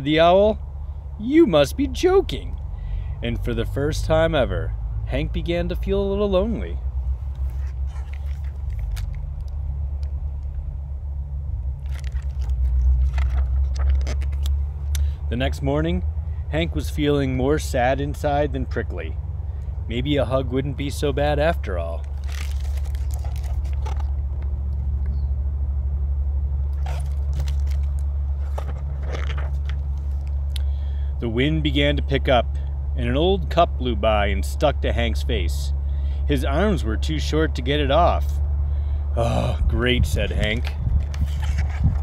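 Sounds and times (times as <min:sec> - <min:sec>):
low steady rumble: 0:00.0 - 0:42.0
book pages turning: 0:07.3 - 0:09.6, 0:11.8 - 0:14.6, 0:22.0 - 0:24.5, 0:26.7 - 0:30.4, 0:40.4 - 0:42.0.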